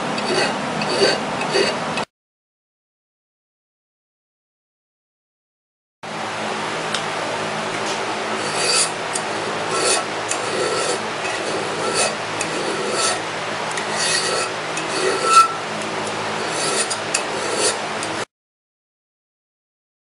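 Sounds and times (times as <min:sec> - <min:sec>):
hand file stroking metal: 0:00.0 - 0:02.1, 0:08.4 - 0:18.2
steady low hum: 0:06.1 - 0:18.3.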